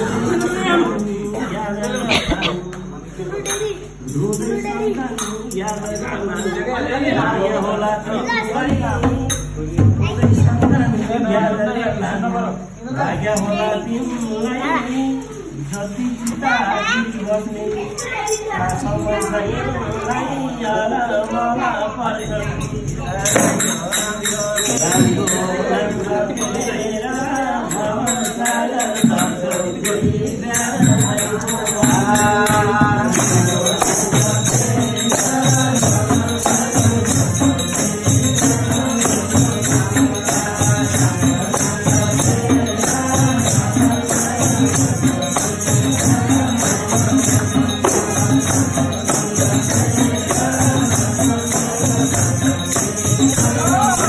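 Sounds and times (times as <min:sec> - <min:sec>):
jingling percussion: 0:00.0 - 0:54.0
voices chanting or singing: 0:00.0 - 0:54.0
hand drum beat: 0:23.2 - 0:25.8, 0:27.7 - 0:54.0.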